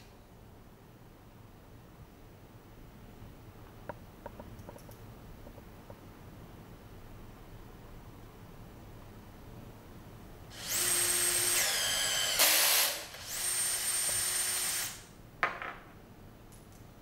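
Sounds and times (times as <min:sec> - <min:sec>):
power tool motor whining: 0:10.5 - 0:15.0.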